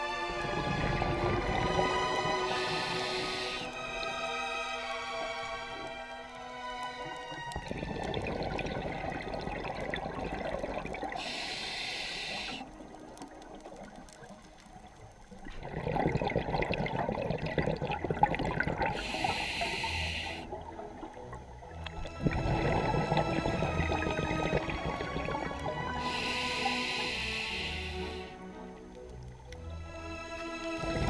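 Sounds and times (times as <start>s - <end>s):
underwater exhaled air bubbling: 0.2s - 4.2s, 6.9s - 29.2s
breath hissing through regulator: 0.4s - 4.1s, 7.6s - 12.9s, 18.0s - 20.6s, 22.1s - 28.6s.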